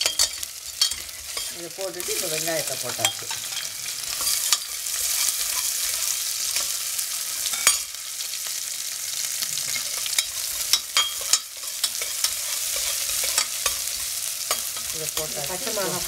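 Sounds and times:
ladle clicking and scraping pot: 0:00.0 - 0:01.6, 0:02.9 - 0:06.8, 0:09.7 - 0:15.3
onions sizzling in oil: 0:00.0 - 0:16.0.

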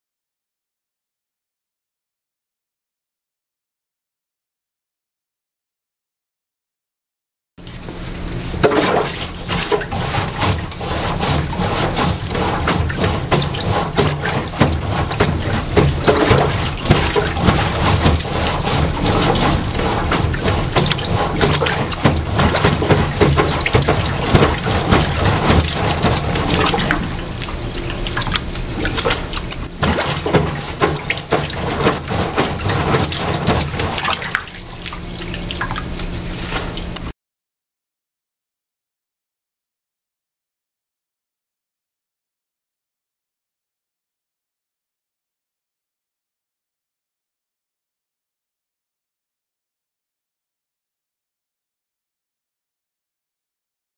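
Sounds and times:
water sloshing in sink drain: 0:07.7 - 0:37.1
plunger clicks: 0:26.5 - 0:30.3.

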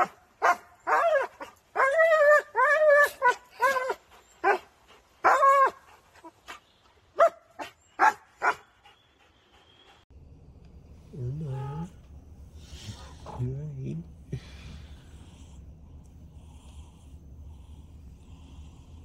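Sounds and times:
dog barking excitedly: 0:00.0 - 0:02.0.

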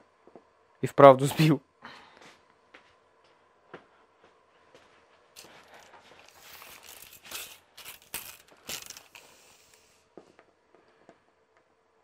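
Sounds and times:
tape measure rustling and scraping: 0:05.4 - 0:09.8
tape measure clicks: 0:06.3 - 0:09.8.

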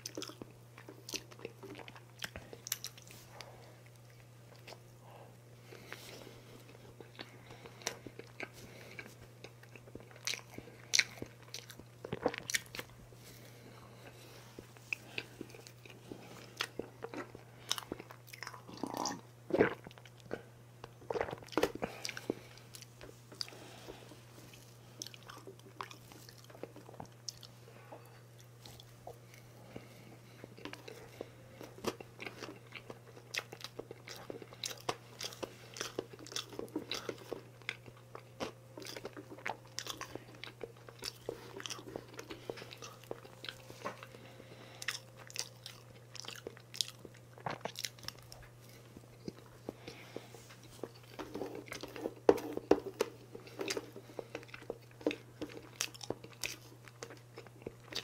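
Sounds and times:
chewing and crunching cake: 0:00.0 - 0:58.0
steady low hum: 0:00.0 - 0:58.0.

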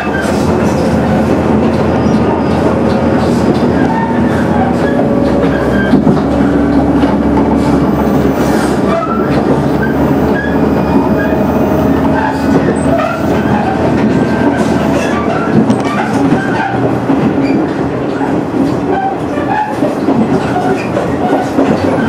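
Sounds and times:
wheels rumbling on rails: 0:00.0 - 0:22.0
diesel engine drone: 0:00.6 - 0:16.0.

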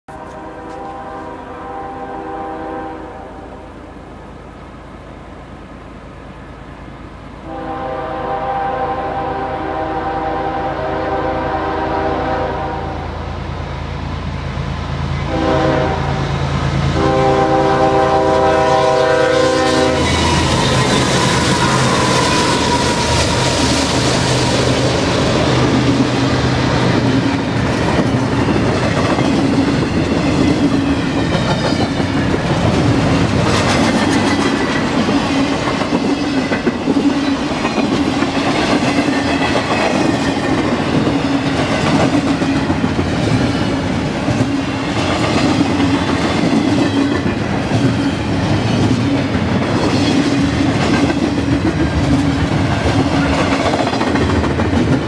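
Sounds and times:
diesel locomotive engines droning: 0:00.1 - 0:55.0
train wheels clattering on rails: 0:19.7 - 0:55.0.

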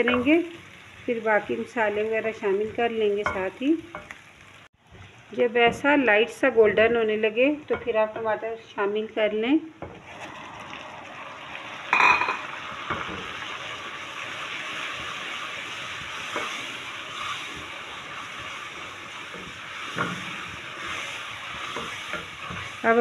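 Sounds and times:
hot oil sizzling: 0:00.0 - 0:23.0
wooden spoon stirring in metal pan: 0:14.2 - 0:23.0.

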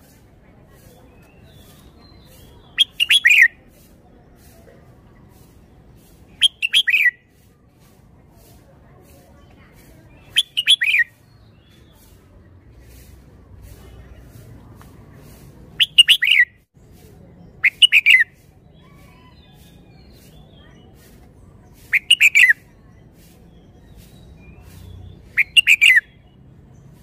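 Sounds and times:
bird singing whistled notes: 0:01.1 - 0:03.6, 0:06.3 - 0:07.4, 0:10.0 - 0:12.0, 0:15.8 - 0:16.6, 0:17.5 - 0:20.9, 0:21.7 - 0:26.4.

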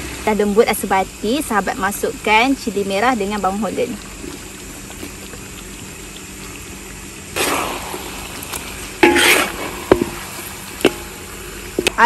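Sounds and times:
faint sizzle: 0:00.0 - 0:12.0
metal spatula stirring in wok: 0:07.4 - 0:12.0.

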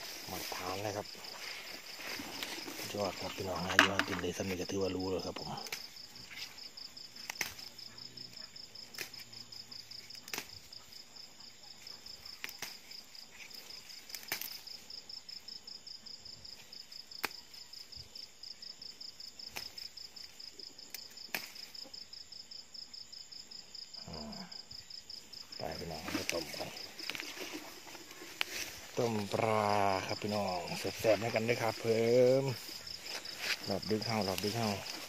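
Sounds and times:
cricket trilling: 0:00.0 - 0:35.0
plant stems snapping: 0:07.2 - 0:07.8, 0:08.9 - 0:09.2, 0:10.2 - 0:10.6, 0:12.4 - 0:13.0, 0:14.1 - 0:14.6, 0:17.2 - 0:17.4, 0:19.5 - 0:19.8, 0:20.9 - 0:21.7.

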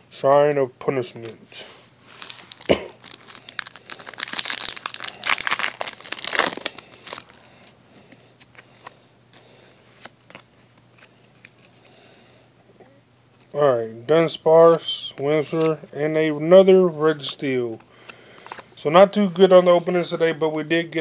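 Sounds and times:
foil wrapper tearing and crinkling: 0:02.1 - 0:07.5.

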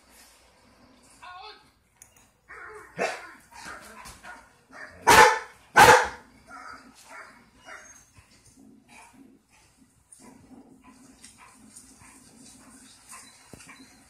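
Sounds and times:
large dog barking: 0:02.9 - 0:06.3.

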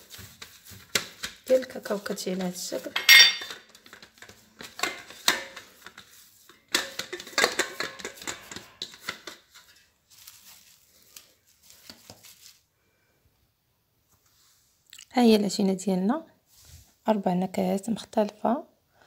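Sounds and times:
metal spoon scraping saucepan: 0:02.8 - 0:03.8.

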